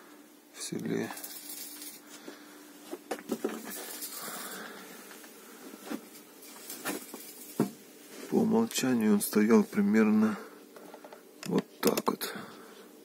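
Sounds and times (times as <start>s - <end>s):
faint hiss: 0.0s - 13.0s
soft rustle: 1.1s - 10.1s.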